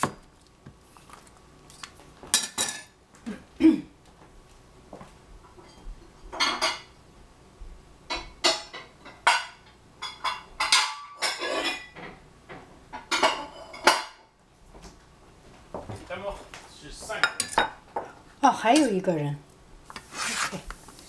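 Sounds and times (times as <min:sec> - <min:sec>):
dishes and utensils clattering: 0:02.3 - 0:03.0, 0:05.5 - 0:07.0, 0:08.1 - 0:12.2, 0:12.9 - 0:14.3, 0:17.1 - 0:19.1.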